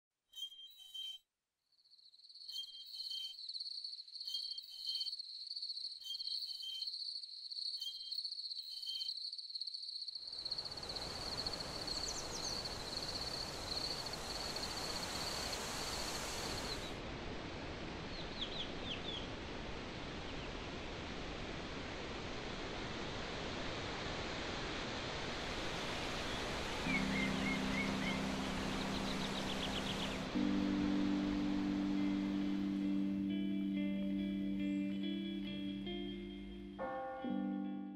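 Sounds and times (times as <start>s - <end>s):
bird chirps: 0.3s - 1.2s, 2.3s - 5.2s, 6.0s - 7.0s, 7.7s - 9.2s, 26.9s - 30.3s
cricket trill: 1.8s - 17.0s
steady rushing noise: 10.6s - 33.0s.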